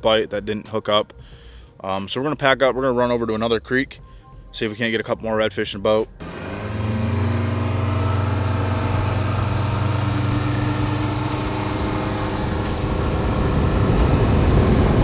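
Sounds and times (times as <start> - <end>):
boat engine: 6.2 - 15.0.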